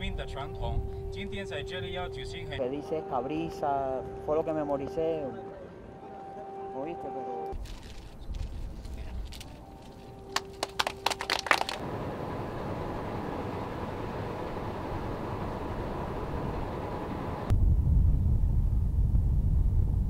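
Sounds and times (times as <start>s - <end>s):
faint hum: 0.0s - 20.0s
low rumble: 12.2s - 20.0s.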